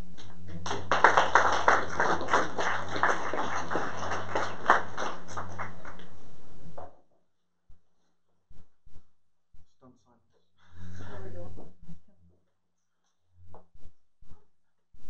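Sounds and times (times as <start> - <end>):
audience applauding: 0.2 - 6.2.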